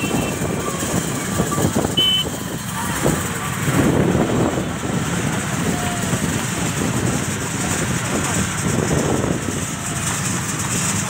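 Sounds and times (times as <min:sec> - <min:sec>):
road traffic rumble: 0:00.0 - 0:11.0
wind buffeting microphone: 0:00.0 - 0:11.0.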